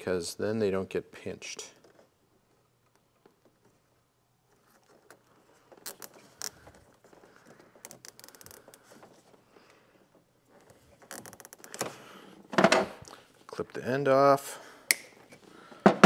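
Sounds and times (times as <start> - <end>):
zip tie ratcheting ticks: 7.8 - 8.8, 11.1 - 11.8.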